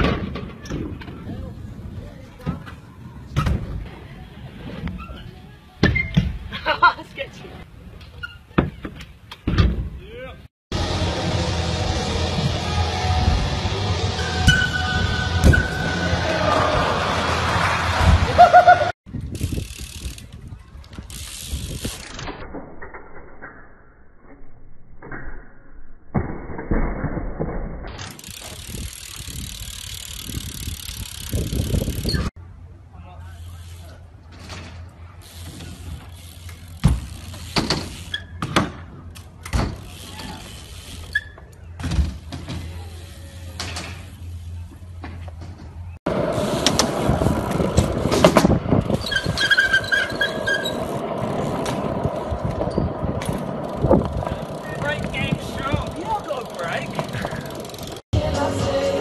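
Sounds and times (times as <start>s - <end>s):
bike tyres on pavement: 0.0s - 23.0s, 27.4s - 59.0s
bike hub clicking: 19.2s - 22.2s, 28.0s - 32.3s, 35.2s - 38.4s, 53.2s - 58.0s
bike landing knocks: 36.5s - 40.0s
high squeaks: 37.2s - 38.4s, 40.1s - 41.8s, 48.9s - 51.2s.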